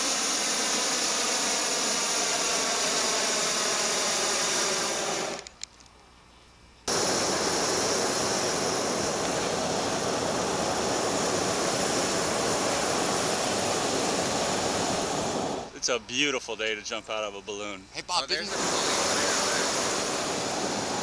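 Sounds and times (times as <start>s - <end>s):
propane burner rushing: 0.0s - 5.6s, 6.9s - 16.0s, 18.0s - 21.0s.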